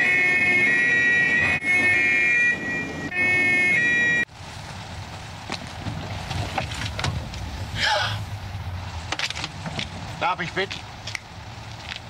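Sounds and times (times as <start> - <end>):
police siren two-tone: 0.0 - 4.3.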